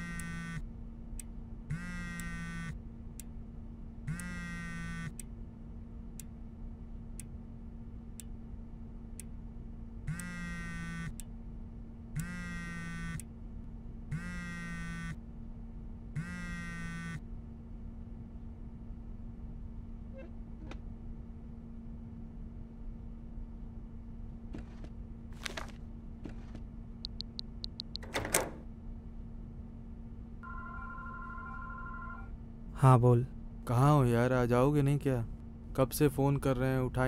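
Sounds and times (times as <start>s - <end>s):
steady hum: 0.0s - 37.0s
faint ticks: 2.1s - 2.5s
phone ringtone: 30.4s - 32.3s.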